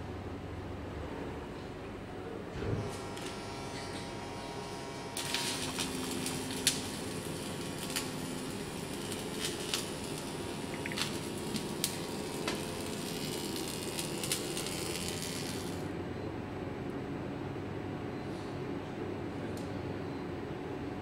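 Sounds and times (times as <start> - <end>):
welding hiss: 5.1 - 15.9
sharp crackling pops: 5.2 - 15.8.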